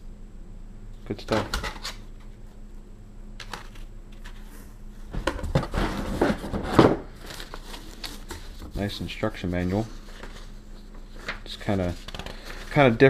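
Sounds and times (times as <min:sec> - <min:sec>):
knocks and rustles: 0:05.1 - 0:07.2
cardboard and plastic handling: 0:05.1 - 0:13.0.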